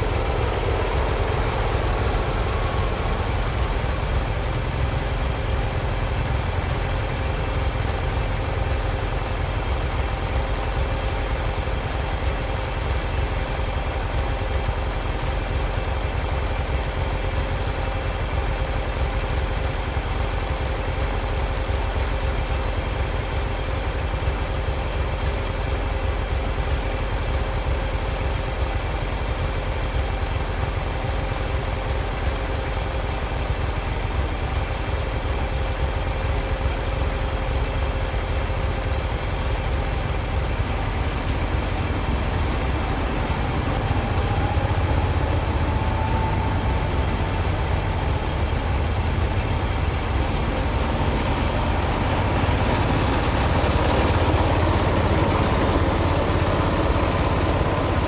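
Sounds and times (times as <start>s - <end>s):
steady hum: 0.0s - 15.7s, 34.6s - 58.0s
tractor engine idling: 0.0s - 58.0s.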